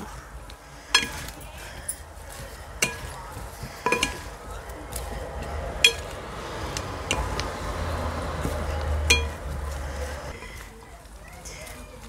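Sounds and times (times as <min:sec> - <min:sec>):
wooden servers clinking ceramic bowl: 0:00.9 - 0:02.1, 0:02.8 - 0:04.6, 0:05.8 - 0:06.2, 0:08.4 - 0:10.5.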